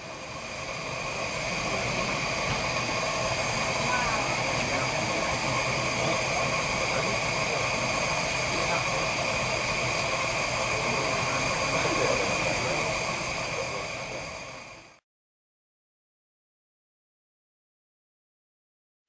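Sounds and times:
steam hissing from safety valves: 0:00.0 - 0:15.0.

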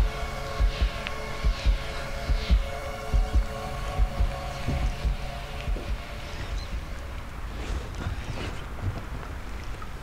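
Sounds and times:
faint steady hum: 0:00.0 - 0:10.0
wind and handling thumps on microphone: 0:04.1 - 0:06.7, 0:07.5 - 0:10.0.

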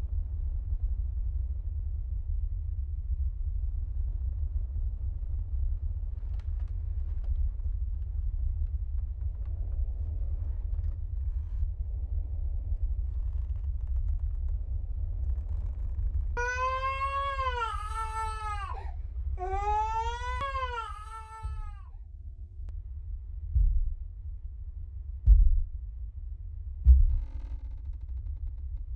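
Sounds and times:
low rumble: 0:00.0 - 0:28.9
baby crying: 0:16.4 - 0:21.9.

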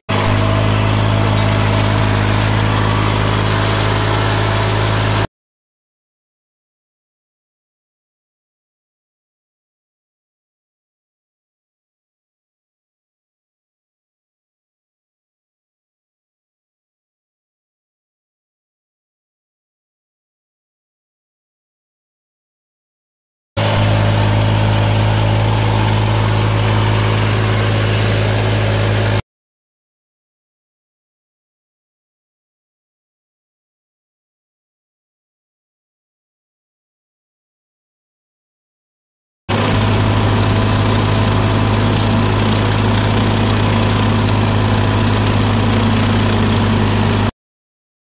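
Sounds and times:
tractor engine idling: 0:00.1 - 0:05.3, 0:23.6 - 0:29.2, 0:39.5 - 0:47.3.

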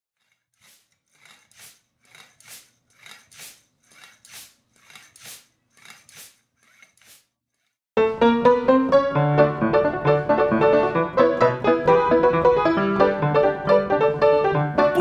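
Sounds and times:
hand bicycle pump hissing: 0:00.2 - 0:07.8.

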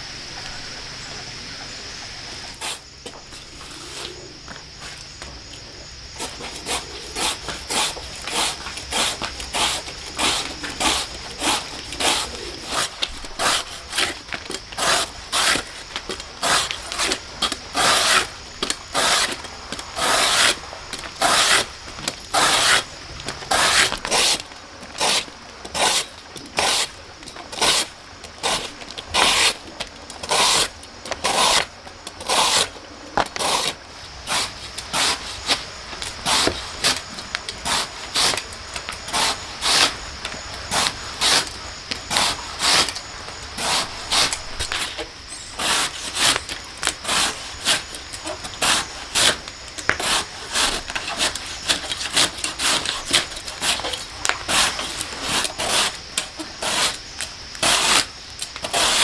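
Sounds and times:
scraping strokes: 0:06.2 - 0:29.6, 0:30.2 - 0:40.0, 0:43.6 - 0:57.0.

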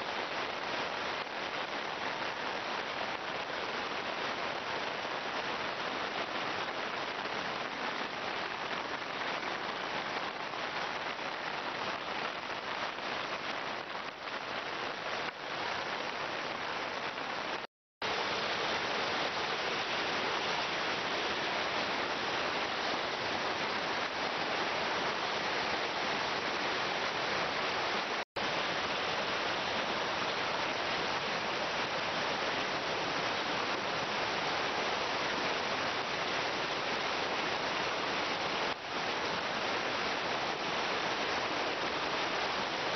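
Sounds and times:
heavy rain hissing: 0:00.0 - 0:42.9
rushing floodwater: 0:00.0 - 0:42.9.

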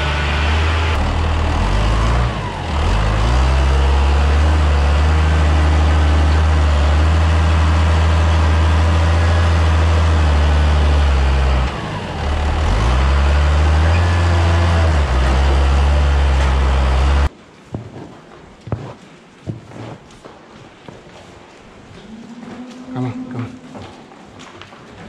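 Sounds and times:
tractor diesel engine running: 0:00.0 - 0:17.3.

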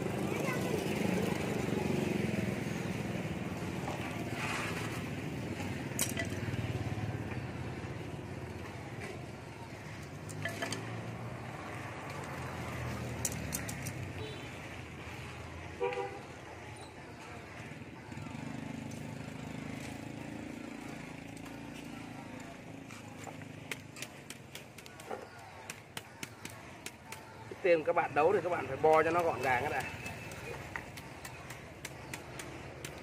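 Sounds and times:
wire being handled: 0:10.1 - 0:10.9, 0:13.2 - 0:14.0
light clicks of wire and tools: 0:13.1 - 0:14.0.

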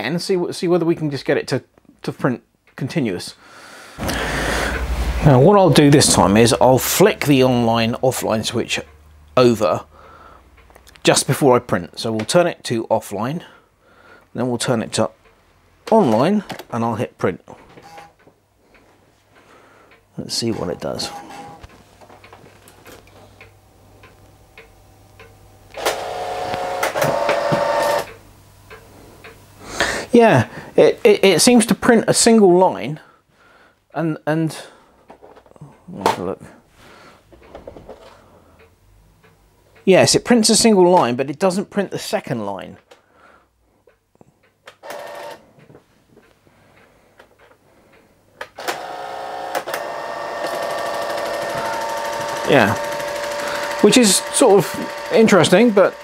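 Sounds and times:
printer printing: 0:21.0 - 0:21.7, 0:25.8 - 0:28.1, 0:48.6 - 0:56.0.

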